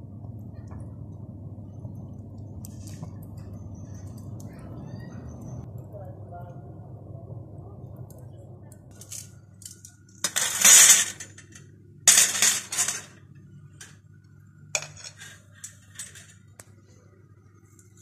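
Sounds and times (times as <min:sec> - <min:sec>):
metal skewers clattering and scraping: 0:08.9 - 0:14.0, 0:14.7 - 0:16.6.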